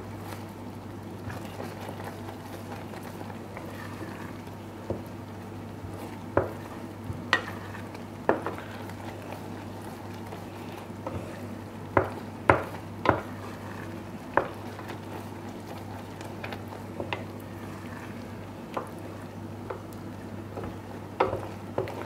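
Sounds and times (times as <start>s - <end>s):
syrup simmering in a pot: 0.0s - 22.0s
spoon stirring: 20.5s - 22.0s.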